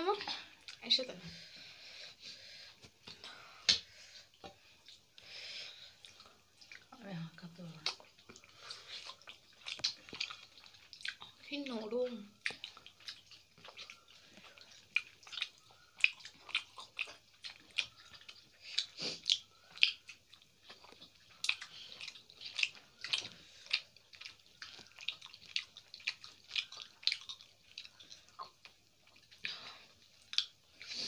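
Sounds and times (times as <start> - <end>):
wet chewing: 2.2 - 31.0
mouth clicks and smacks: 7.7 - 11.4, 12.4 - 29.6.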